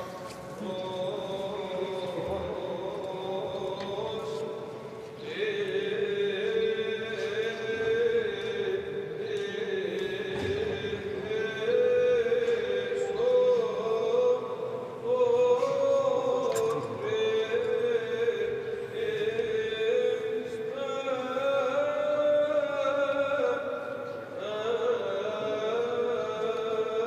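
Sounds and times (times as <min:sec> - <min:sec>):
clergy chanting: 0:00.0 - 0:27.0.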